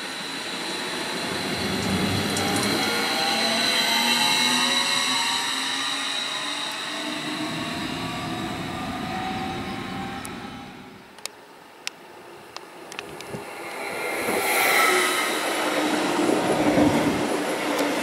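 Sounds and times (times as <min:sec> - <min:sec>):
electric train motor whine: 0:00.0 - 0:11.0
wheels rumbling on rails: 0:00.5 - 0:05.4.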